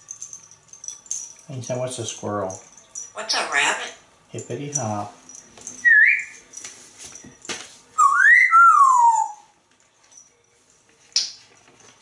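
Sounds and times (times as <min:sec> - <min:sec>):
parrot whistling: 0:05.8 - 0:06.4, 0:08.0 - 0:09.5.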